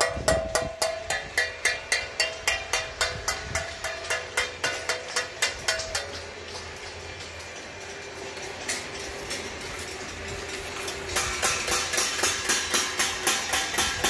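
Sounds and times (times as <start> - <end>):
metal plate beaten rhythmically: 0.0 - 6.4, 10.9 - 14.0.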